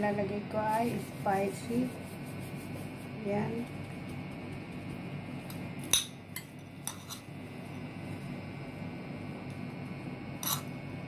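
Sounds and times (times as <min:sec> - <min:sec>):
steady low hum: 0:00.0 - 0:11.0
metal spoon clinking on dishes: 0:05.9 - 0:07.3, 0:10.4 - 0:10.7.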